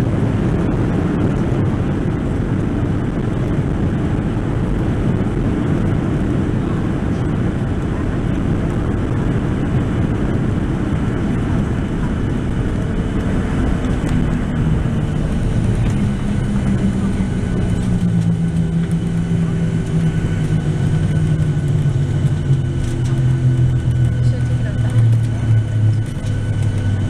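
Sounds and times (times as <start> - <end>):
engines and wheels rumbling: 0.0 - 27.0
jet engine hum: 0.0 - 27.0.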